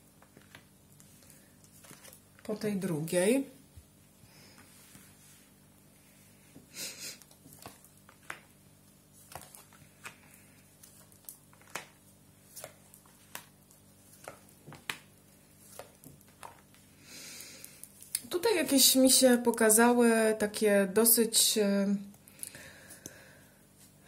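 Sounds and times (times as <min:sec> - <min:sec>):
papery rustle: 0:00.2 - 0:02.6.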